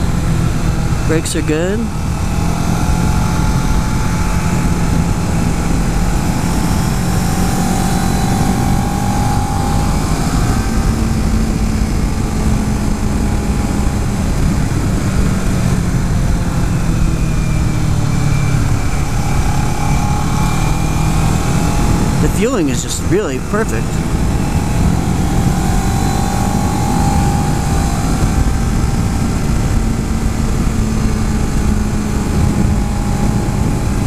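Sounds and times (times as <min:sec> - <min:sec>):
wind and road noise: 0:00.0 - 0:34.0
motorcycle engine running: 0:23.3 - 0:34.0.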